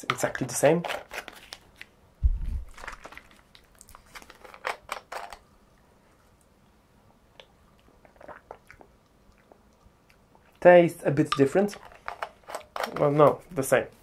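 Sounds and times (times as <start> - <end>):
plastic bottle crackling: 0.8 - 5.4.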